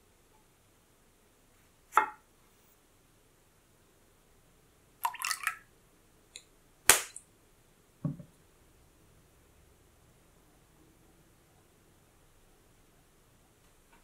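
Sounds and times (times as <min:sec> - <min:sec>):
dull knock: 0:08.0 - 0:08.3.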